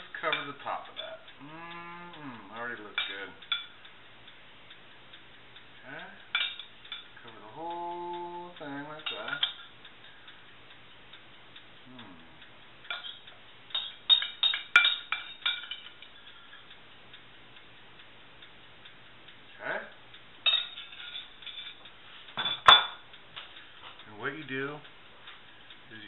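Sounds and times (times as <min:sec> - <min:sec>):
metal spoon clinking in ceramic bowl: 0:12.9 - 0:15.9, 0:20.4 - 0:21.8.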